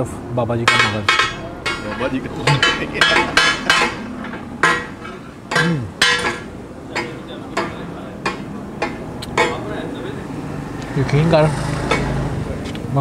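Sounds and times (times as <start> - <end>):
metal spatulas clanging on griddle: 0.7 - 9.8, 11.9 - 12.2.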